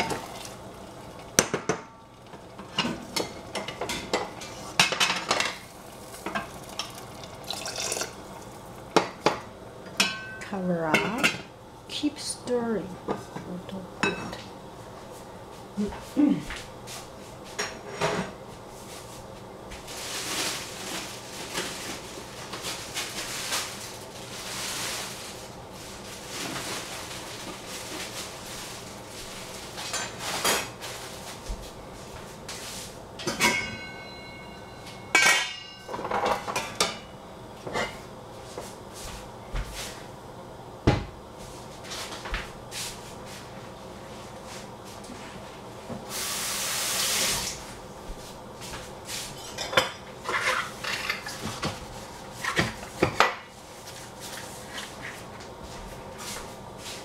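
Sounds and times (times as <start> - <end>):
pots and bowls clattering: 2.6 - 8.4, 33.2 - 37.1, 49.4 - 51.8.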